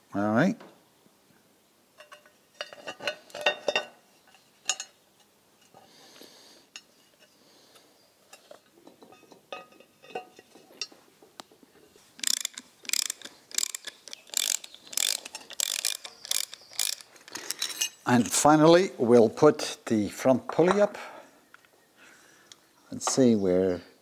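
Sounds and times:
metal clinks and taps: 8.3s - 11.0s
ratchet wrench clicking: 12.2s - 17.6s.

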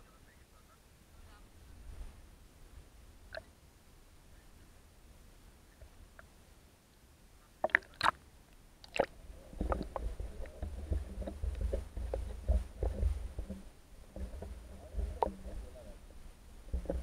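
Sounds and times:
small underwater knocks and clicks: 7.6s - 8.2s, 8.8s - 17.0s
muffled underwater rumble: 9.0s - 17.0s.

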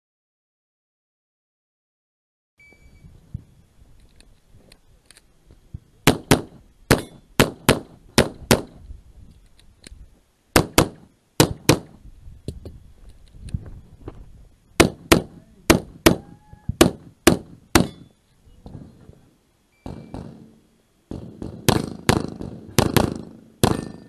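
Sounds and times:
short ringing tone: 2.6s - 3.2s, 19.7s - 20.2s.

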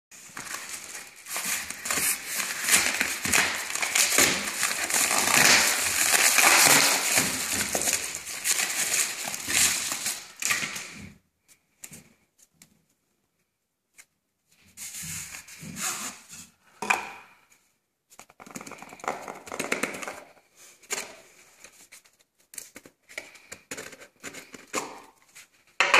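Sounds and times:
paper mailer crinkling and tearing: 0.2s - 10.9s.

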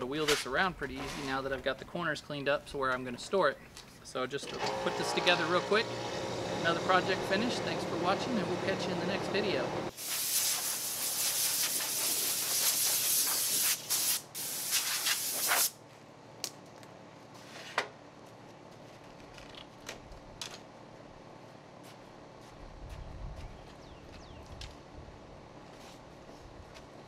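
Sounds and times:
compressed air hissing: 9.9s - 15.7s.

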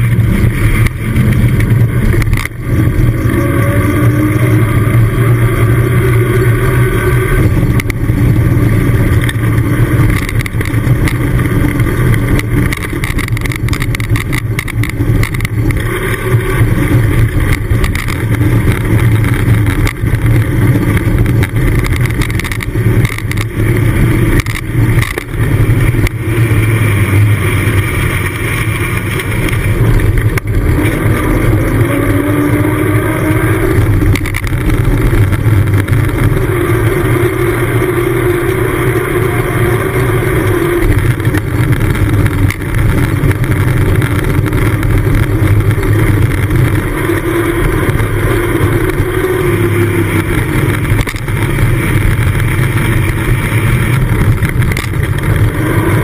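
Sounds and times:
bicycle knocks and rattles: 0.0s - 3.3s, 7.4s - 26.7s, 33.2s - 36.6s, 40.8s - 48.1s, 50.0s - 56.0s
tyres rolling on tarmac: 0.0s - 56.0s.

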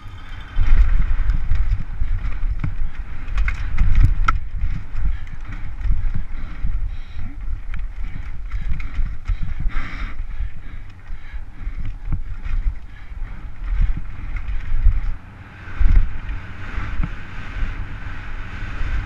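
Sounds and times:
bike rattling over roots: 0.0s - 15.2s
tyres rumbling on dirt: 0.0s - 19.0s
wind buffeting microphone: 0.0s - 19.0s.

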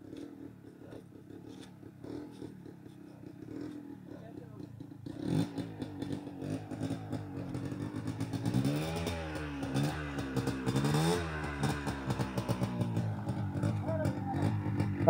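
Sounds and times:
dirt bike engine revving: 5.1s - 15.0s.

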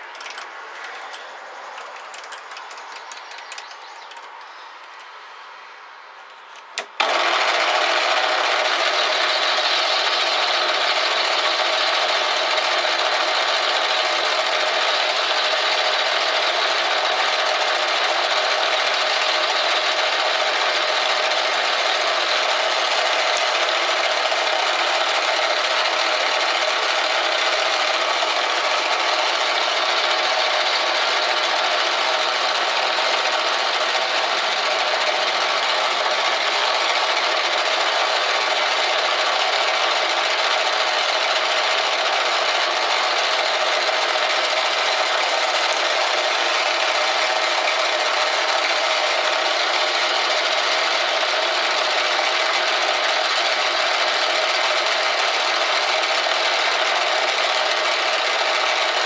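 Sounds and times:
faint clicks: 0.0s - 5.2s
metal lathe whirring: 6.6s - 59.0s.

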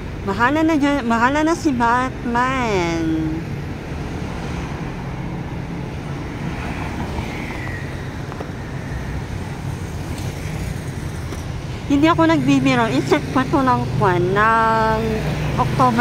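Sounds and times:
cars passing: 0.0s - 16.0s
motor scooter passing: 4.2s - 16.0s.

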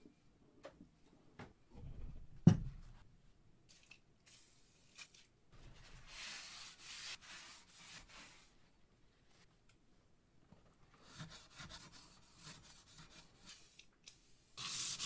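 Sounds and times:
paper towel wiping steel: 5.8s - 8.6s.

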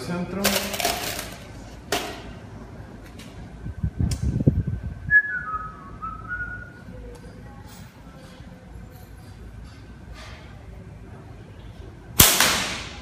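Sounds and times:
man whistling a tune: 5.1s - 6.8s.

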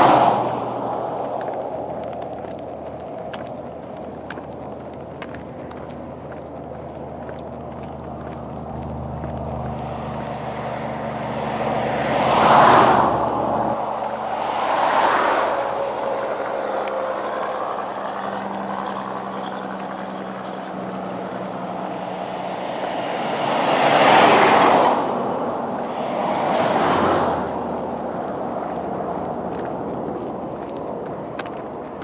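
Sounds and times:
low engine hum: 0.0s - 32.0s
vehicles passing on highway: 0.0s - 32.0s.

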